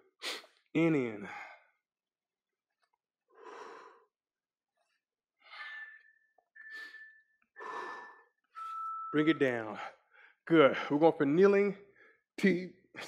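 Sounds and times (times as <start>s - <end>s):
man breathing heavily: 1.2s - 1.8s, 3.3s - 4.1s, 6.7s - 8.4s
thin steady high tone: 5.6s - 7.4s, 8.6s - 9.7s.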